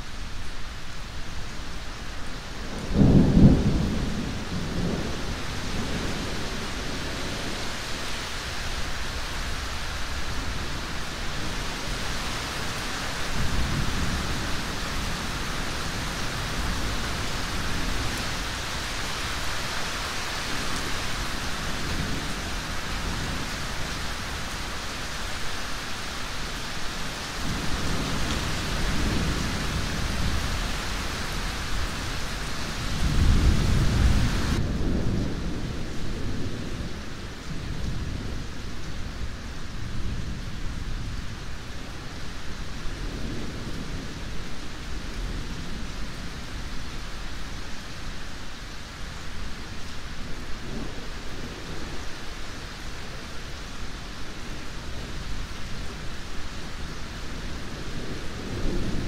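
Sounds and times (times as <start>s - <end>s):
steady rain falling: 0.0s - 59.0s
rolling thunder: 2.6s - 7.7s.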